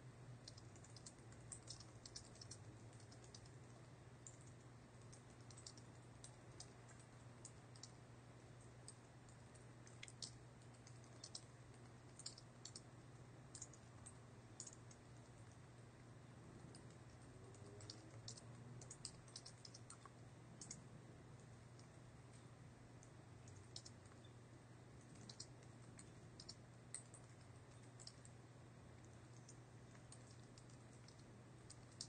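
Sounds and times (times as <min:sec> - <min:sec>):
low steady hum: 0:00.0 - 0:32.0
computer keyboard typing: 0:00.4 - 0:08.0, 0:08.6 - 0:12.9, 0:13.5 - 0:15.6, 0:16.6 - 0:20.8, 0:23.4 - 0:24.3, 0:25.0 - 0:28.4, 0:29.1 - 0:32.0.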